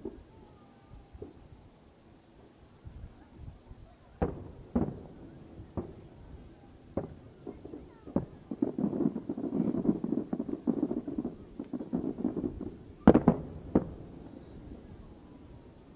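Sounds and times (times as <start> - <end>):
firework crackle: 4.1 - 15.9
distant firework booms: 4.2 - 15.9.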